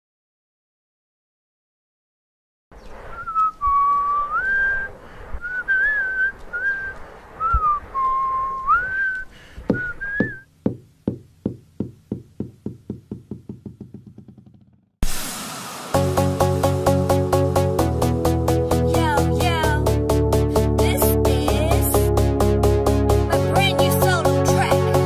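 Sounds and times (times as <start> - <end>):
sudden loud rush of noise: 2.8 - 8.6, 15.0 - 17.1
person whistling a tune: 3.2 - 10.5
knocks: 9.7 - 14.8.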